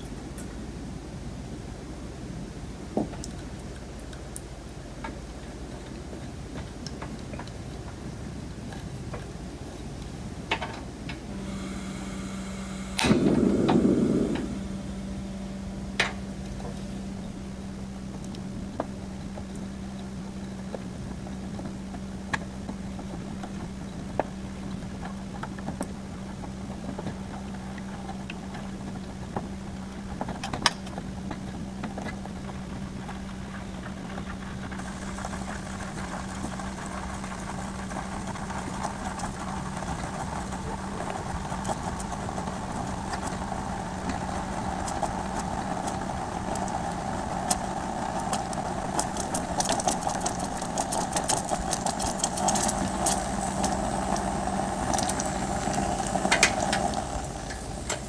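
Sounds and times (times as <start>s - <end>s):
gas stove humming: 10.9s - 58.0s
high hiss: 11.2s - 20.6s, 33.5s - 58.0s
paste popping: 44.0s - 58.0s.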